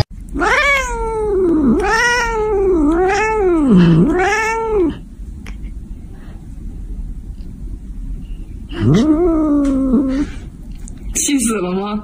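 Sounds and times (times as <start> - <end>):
cat yowling: 0.3 - 5.0, 8.7 - 10.4.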